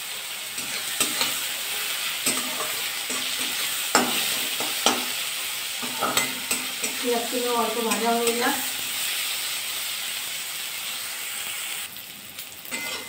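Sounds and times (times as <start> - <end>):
onions sizzling in hot oil: 0.0 - 13.0
spatula scraping and knocking pan: 0.6 - 1.5, 2.2 - 5.2, 5.8 - 7.1.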